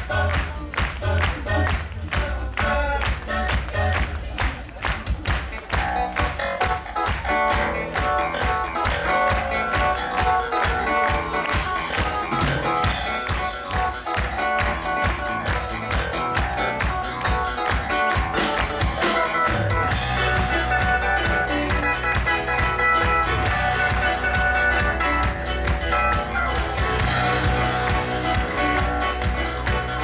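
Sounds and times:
drum kit: 0.0 - 30.0
keyboards: 0.0 - 30.0
electric guitar: 2.6 - 30.0.

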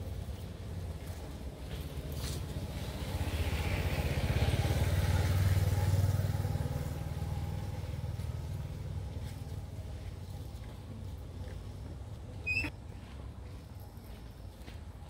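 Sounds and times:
vehicle engine passing: 2.2 - 10.0.

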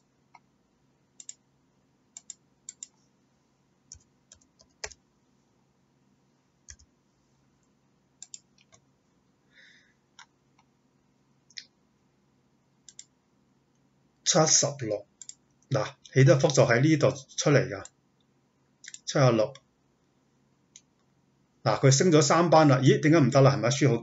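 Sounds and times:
computer mouse clicks: 1.2 - 1.4, 2.2 - 3.0, 3.9 - 5.0, 6.7 - 6.9, 8.2 - 8.9, 12.8 - 13.1, 15.2 - 15.6, 18.8 - 19.7, 20.7 - 21.1
keyboard keystrokes: 6.7 - 6.9.

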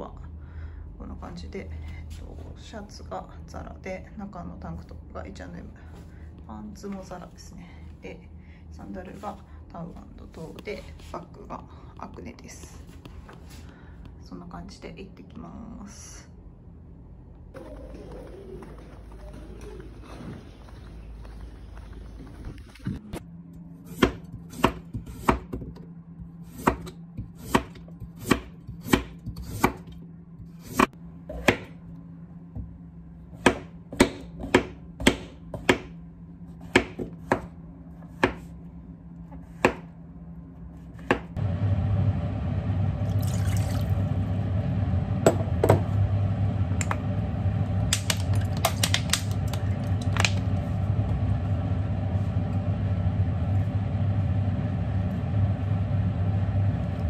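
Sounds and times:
steady low hum: 0.0 - 57.0
knife chopping on wooden board: 23.9 - 25.7, 33.4 - 35.9, 36.6 - 37.5, 38.1 - 38.5, 39.4 - 39.9.

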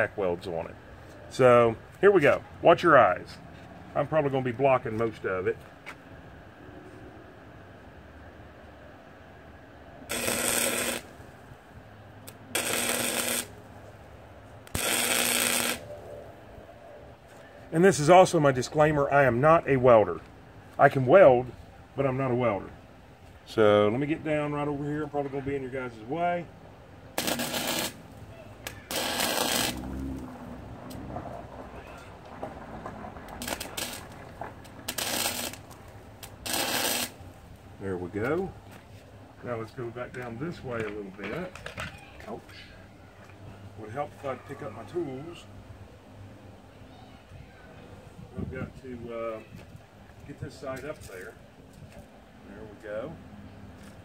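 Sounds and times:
welder crackling and buzzing: 10.1 - 11.2, 12.2 - 13.6, 14.6 - 15.9, 27.2 - 31.0, 33.3 - 37.4.

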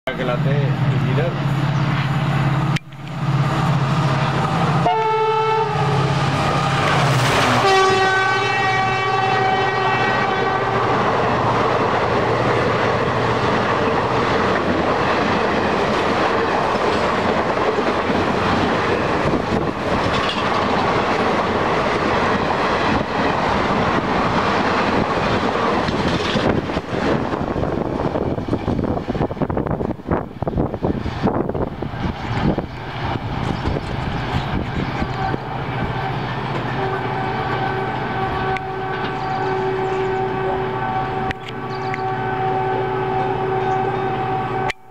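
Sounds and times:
diesel locomotive running hard: 0.1 - 44.9
train horn blasts: 4.8 - 6.6, 7.4 - 11.4, 35.0 - 44.9
wheels clacking over rail joints: 11.2 - 27.5.

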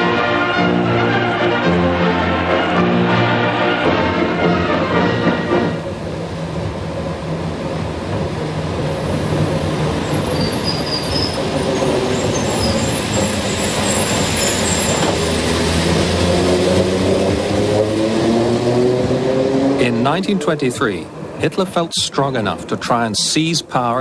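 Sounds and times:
tram wheels rumbling on track: 0.0 - 24.0
high-pitched wheel squeal: 10.1 - 15.5.

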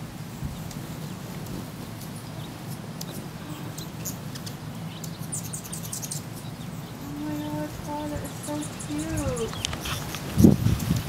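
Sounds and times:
low background hum: 0.0 - 10.6
high bird chirps: 2.2 - 9.8.

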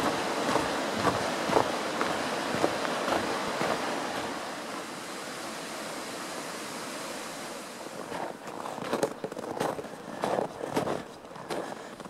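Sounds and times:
footstep crunching in snow: 0.0 - 4.4, 8.0 - 12.0
steady outdoor rushing noise: 0.0 - 12.0.

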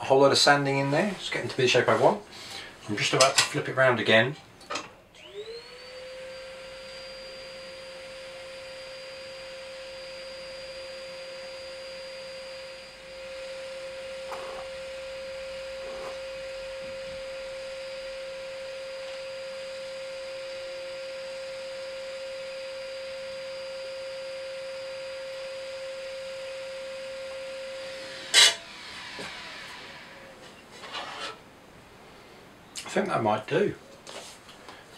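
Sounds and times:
scroll saw motor whine: 5.1 - 31.4.

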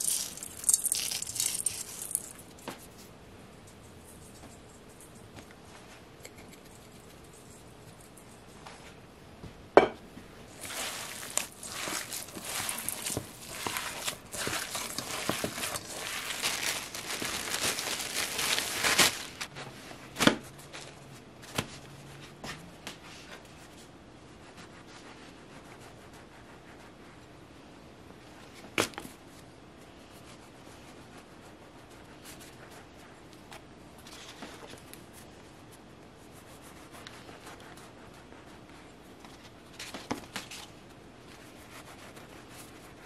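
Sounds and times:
plastic bag crinkling: 0.0 - 2.4, 10.5 - 19.5.

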